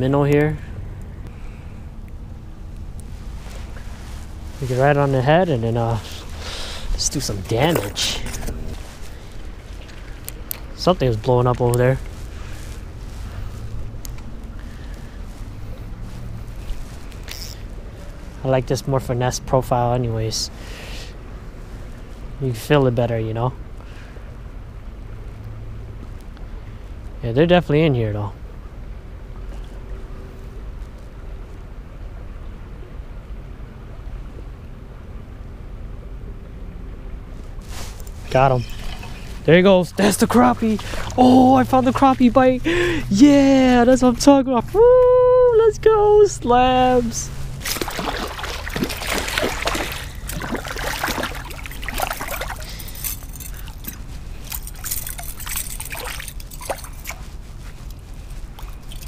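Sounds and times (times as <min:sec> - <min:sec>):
faint steady hum: 0:00.0 - 0:59.0
flowing river water: 0:00.7 - 0:19.1, 0:36.2 - 0:59.0
fish splashing in water: 0:40.1 - 0:41.9, 0:47.3 - 0:59.0.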